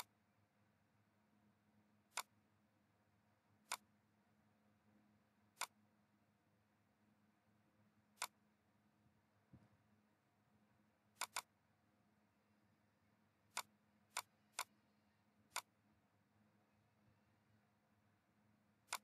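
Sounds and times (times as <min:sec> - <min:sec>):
faint steady hum: 0:00.0 - 0:19.0
mouse button clicks: 0:02.1 - 0:02.3, 0:03.7 - 0:03.9, 0:05.6 - 0:05.8, 0:08.2 - 0:08.4, 0:11.2 - 0:11.5, 0:13.5 - 0:14.8, 0:15.5 - 0:15.7.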